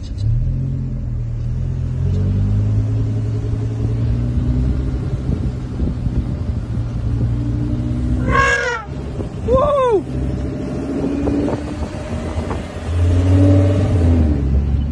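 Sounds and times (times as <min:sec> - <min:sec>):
car engine and tyres rumbling: 0:00.0 - 0:14.9
short high-pitched calls: 0:08.2 - 0:08.9.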